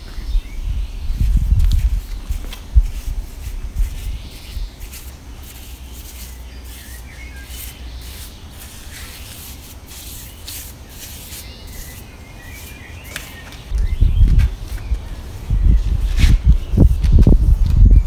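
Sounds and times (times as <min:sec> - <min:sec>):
wind rumble on microphone: 0:00.0 - 0:06.2, 0:13.7 - 0:18.0
small bird chirps: 0:03.9 - 0:17.0.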